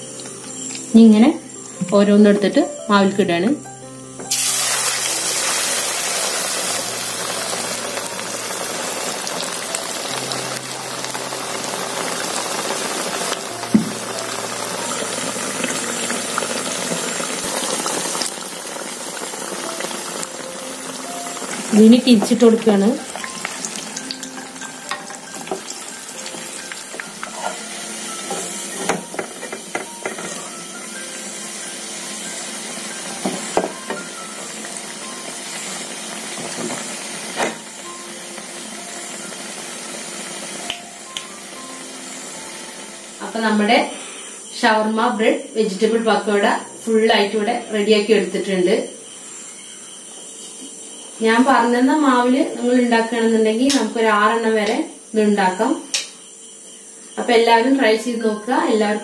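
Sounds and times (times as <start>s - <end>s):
bread deep-frying in oil: 4.3s - 40.7s.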